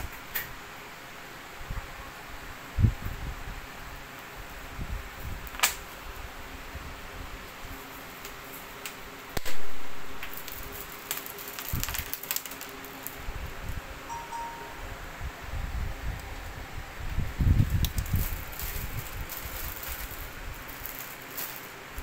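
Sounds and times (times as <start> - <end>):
sequined fabric rustling: 18.1 - 22.0.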